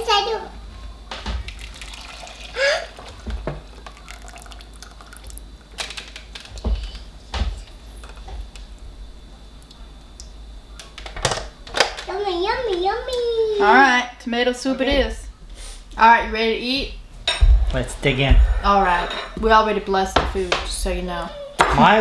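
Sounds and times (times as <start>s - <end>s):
thick soup pouring into pot: 1.5s - 5.4s.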